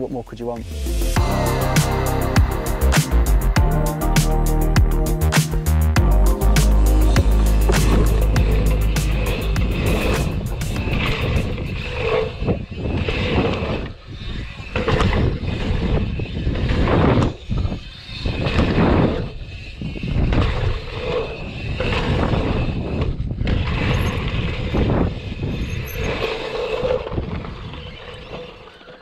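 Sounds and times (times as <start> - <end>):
wind buffeting microphone: 7.2 - 28.6
tyres rolling over dirt: 20.2 - 29.0.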